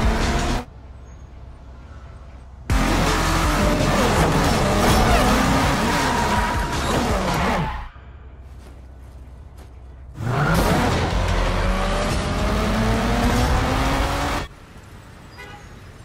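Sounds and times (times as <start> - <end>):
loud road noise: 0.0 - 16.0
vehicle engine revving: 2.7 - 7.6, 10.1 - 14.5.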